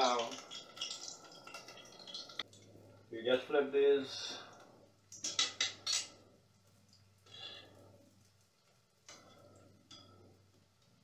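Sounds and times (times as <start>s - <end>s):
utensil scraping pot: 5.2s - 6.4s.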